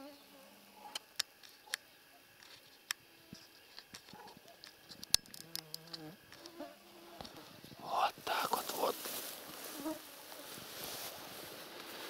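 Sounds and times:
insect buzzing: 0.0 - 12.0
sharp clicks and ticks: 3.8 - 6.0.

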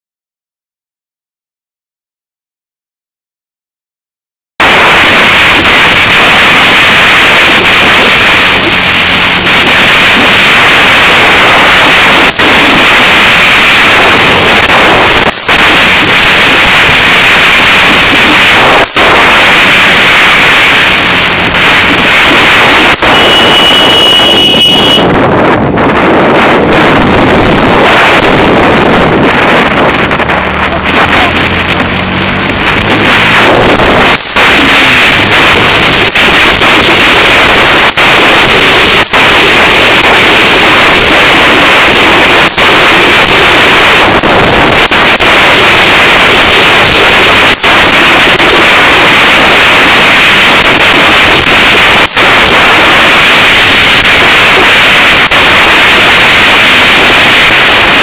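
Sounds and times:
wind buffeting microphone: 4.7 - 48.6
motorcycle engine running: 7.6 - 19.4, 20.0 - 36.2.

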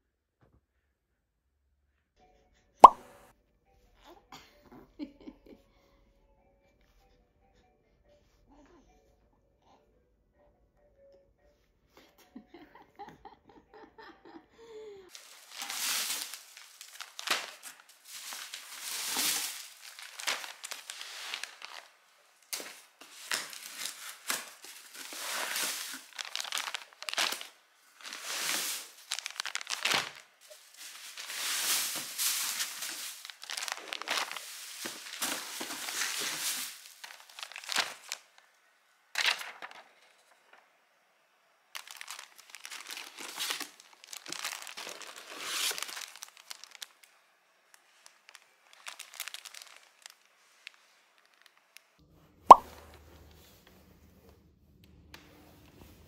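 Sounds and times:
plastic packaging crinkling: 15.1 - 38.4, 39.2 - 40.2, 41.8 - 52.0
cardboard box rustling: 23.0 - 27.4, 28.0 - 38.2.

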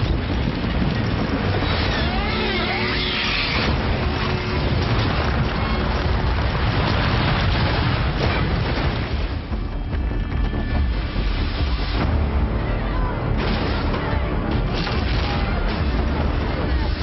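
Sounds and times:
deep rumble: 0.0 - 17.0
film music score: 0.0 - 17.0
heavy booms and crashing: 0.0 - 17.0.

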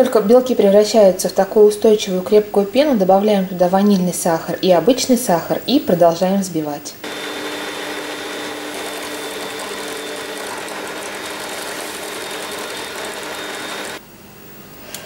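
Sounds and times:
stand mixer whirring: 7.0 - 14.0.

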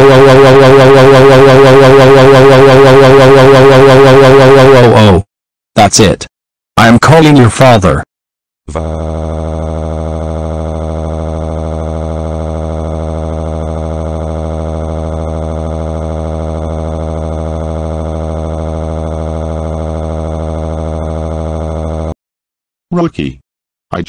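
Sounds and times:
synthetic voice wailing: 0.0 - 5.2.

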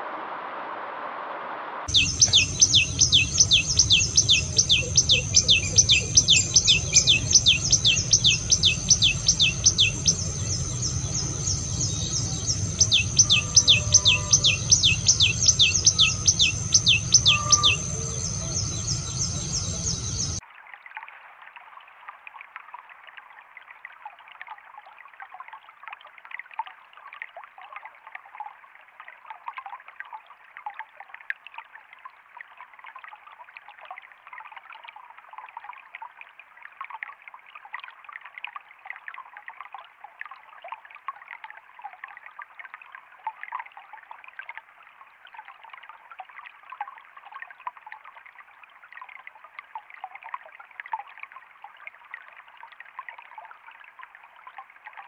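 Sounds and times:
bird whistling song: 1.9 - 20.4
stream trickling over rocks: 1.9 - 55.0
low rumble: 6.4 - 20.4.

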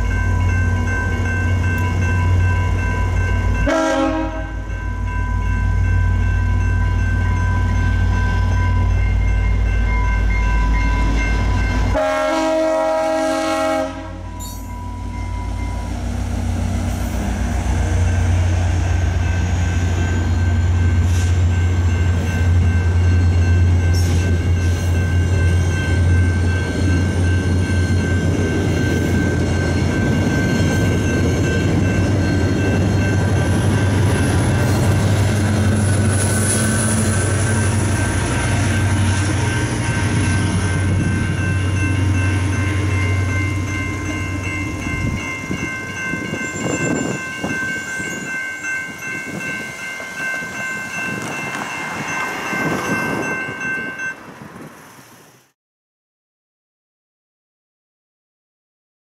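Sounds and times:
crossing bell ringing: 0.0 - 55.2
train rumbling past: 0.0 - 55.6
locomotive horn blast: 3.6 - 4.7, 11.9 - 14.6.

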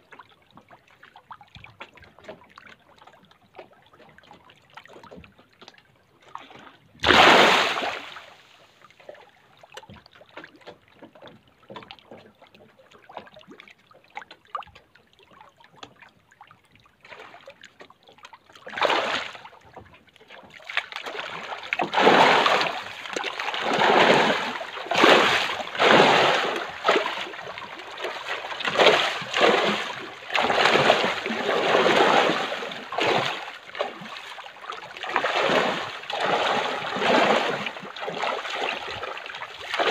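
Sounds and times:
fish splashing at water surface: 7.0 - 8.4, 20.5 - 39.9.

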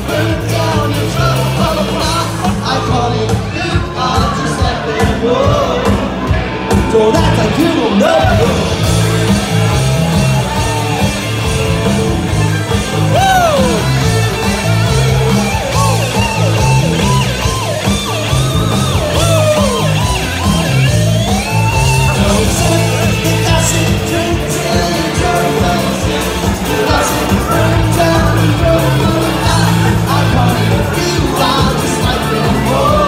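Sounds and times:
person singing: 0.0 - 8.9, 13.0 - 14.2, 21.7 - 33.0
live rock band playing: 0.0 - 33.0.

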